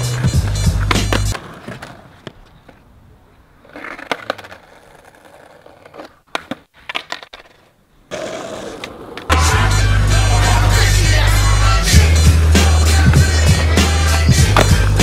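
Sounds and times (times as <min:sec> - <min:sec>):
skateboard clacking on pavement: 0:00.0 - 0:09.4, 0:13.1 - 0:15.0
skateboard wheels rolling on concrete: 0:00.0 - 0:15.0.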